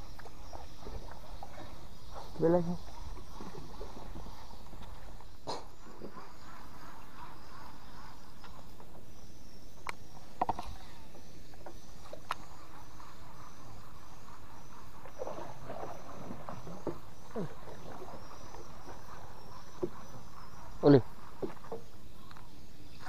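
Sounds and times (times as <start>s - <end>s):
water lapping and sloshing: 0.0s - 23.0s.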